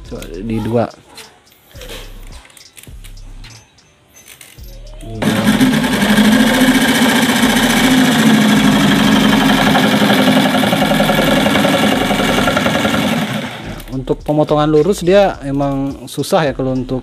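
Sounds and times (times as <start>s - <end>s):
electric jigsaw cutting plywood: 5.2s - 13.9s.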